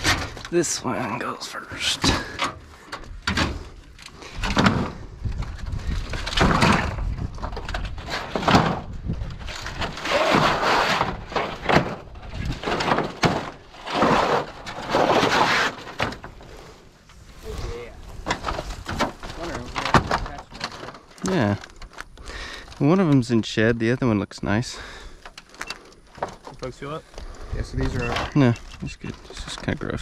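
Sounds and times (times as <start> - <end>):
wooden boards scraping and knocking: 1.8 - 23.1.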